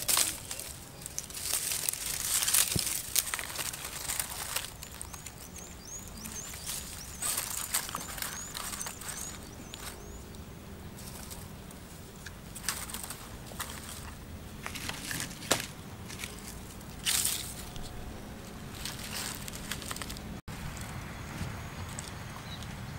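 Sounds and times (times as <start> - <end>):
twigs and grass rustling: 0.0 - 22.8
bird chirping: 3.9 - 11.4, 21.2 - 22.9.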